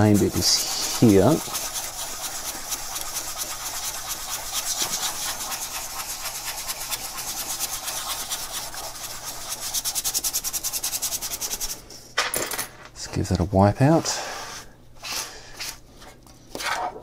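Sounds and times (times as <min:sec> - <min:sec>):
toothbrush scrubbing sheet metal: 0:00.0 - 0:11.9.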